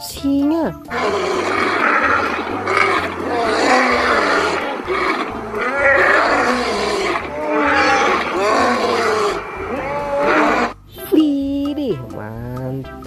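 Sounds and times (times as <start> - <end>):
lions roaring: 0.9 - 10.8.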